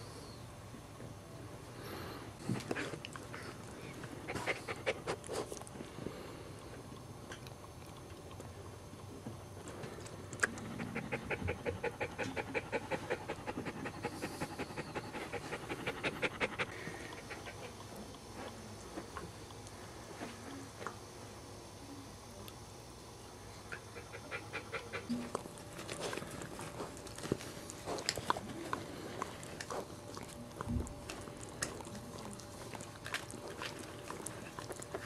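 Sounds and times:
dog panting rapidly: 10.8 - 17.9, 23.7 - 25.3
dog licking: 23.7 - 35.0.

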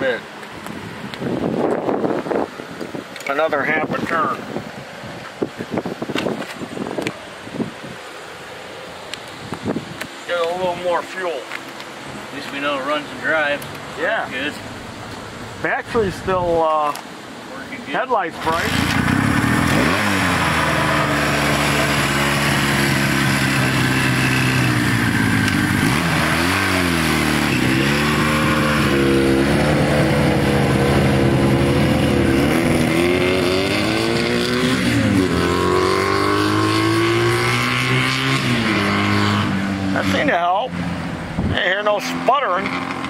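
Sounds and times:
motorcycle engine revving: 18.4 - 43.0.

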